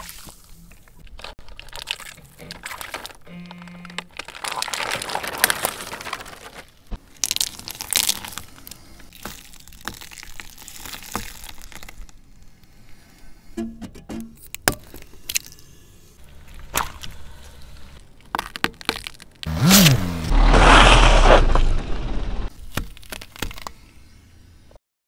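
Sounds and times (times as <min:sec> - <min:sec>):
eggs cracking under tyre: 0:00.9 - 0:20.1, 0:22.3 - 0:24.2
tyre crushing plastic bottles: 0:01.0 - 0:12.2, 0:18.0 - 0:19.5.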